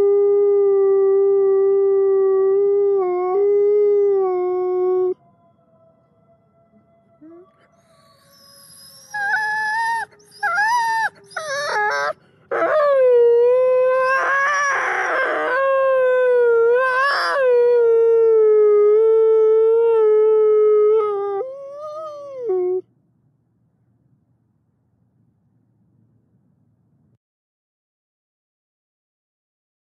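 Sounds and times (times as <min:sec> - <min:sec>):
wolf howling: 0:00.0 - 0:22.8.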